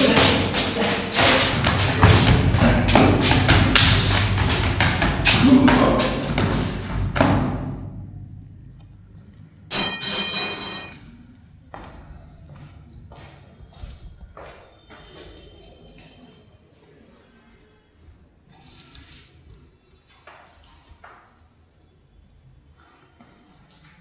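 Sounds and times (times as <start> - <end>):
heavy percussive thumps: 1.2 - 7.9
short bright ringing tone: 9.7 - 11.0.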